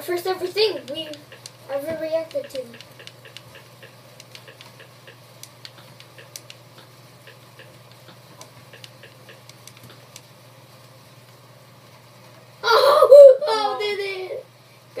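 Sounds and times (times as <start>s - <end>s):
steady low hum: 0.0s - 15.0s
controller button clicks: 2.2s - 10.3s.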